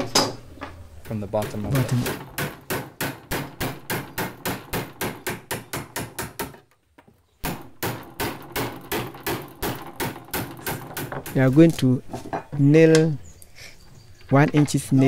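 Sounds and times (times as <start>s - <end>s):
chisel struck into wood: 1.1s - 6.7s, 7.4s - 11.7s.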